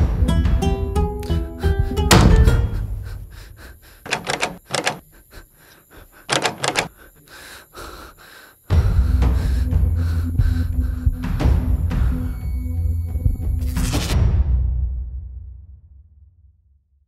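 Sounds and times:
loud thud: 2.1s - 3.0s
low dark music drone: 8.7s - 14.1s.

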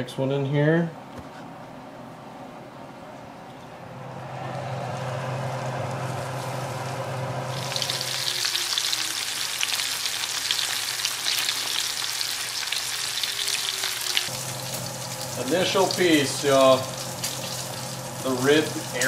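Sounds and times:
steady low hum: 0.9s - 8.3s, 14.3s - 19.0s
fish frying in oil: 6.2s - 19.0s.

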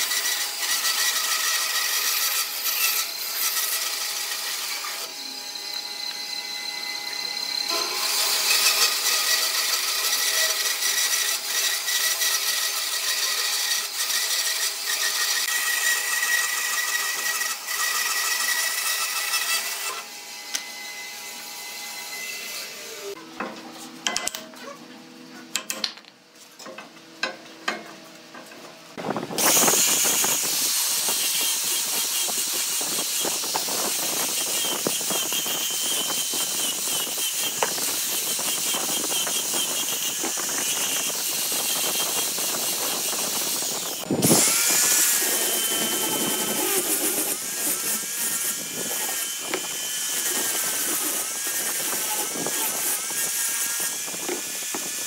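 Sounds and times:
band saw cutting wood: 0.0s - 23.2s, 29.3s - 55.0s
angle grinder sanding wood: 29.4s - 55.0s.

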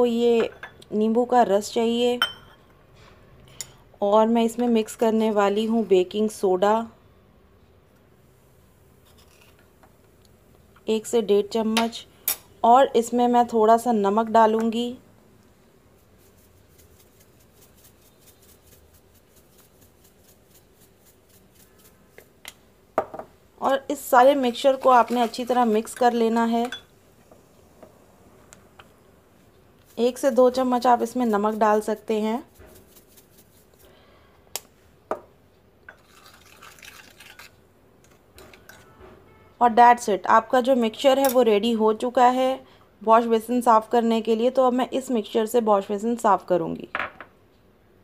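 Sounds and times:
spoon stirring wet paste: 15.9s - 22.5s, 24.2s - 26.9s, 29.8s - 33.8s.

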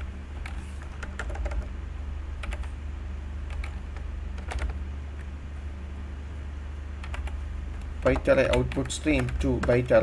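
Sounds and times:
steady low hum: 0.0s - 10.0s
keyboard keys clicking: 0.4s - 1.7s, 2.4s - 2.7s, 3.5s - 4.8s, 7.0s - 9.9s.

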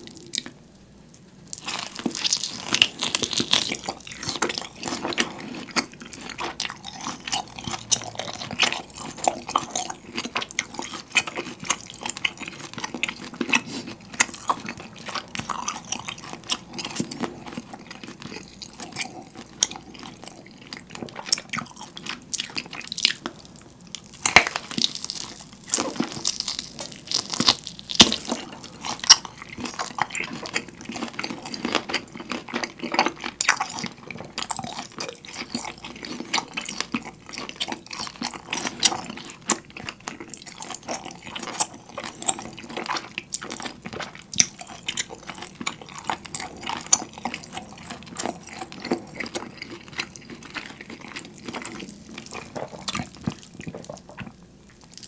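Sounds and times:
wet chewing and biting: 1.5s - 55.0s
meat tearing: 22.8s - 54.2s.

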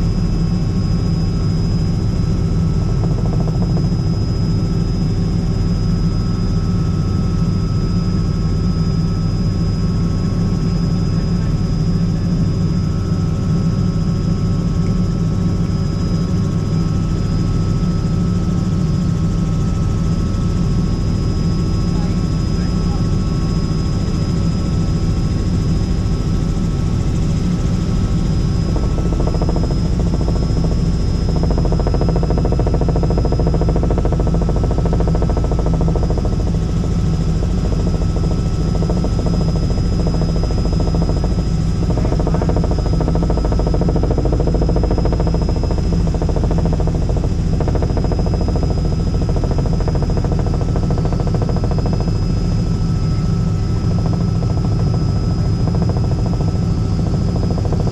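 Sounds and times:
helicopter rotor and engine drone: 0.0s - 57.9s.

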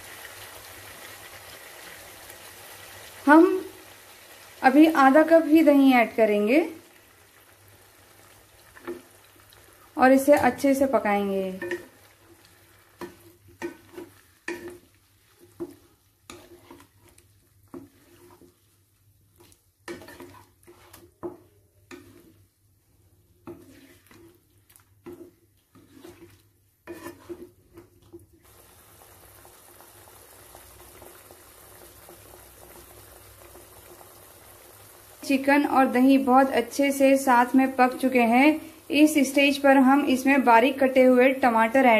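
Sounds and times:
food sizzling in a pan: 0.0s - 41.9s
wooden spatula scraping a pan: 8.7s - 9.1s, 10.2s - 28.5s.

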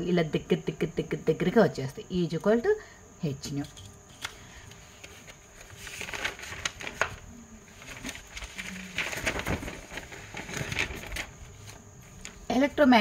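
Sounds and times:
paper rustling: 4.1s - 12.6s.

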